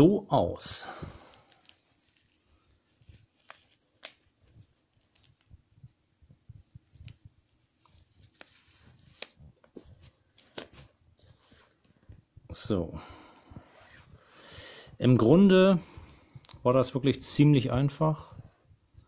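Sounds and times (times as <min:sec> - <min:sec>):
soft rustles: 0:00.9 - 0:14.4.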